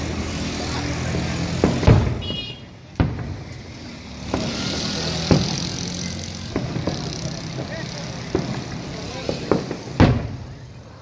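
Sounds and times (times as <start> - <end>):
distant fireworks bursting: 1.1 - 10.9.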